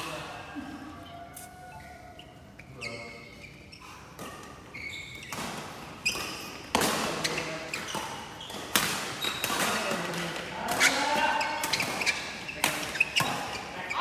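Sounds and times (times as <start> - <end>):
shoes squeaking on court: 1.0 - 9.9, 10.7 - 14.0
rackets hitting shuttlecock: 4.1 - 13.6.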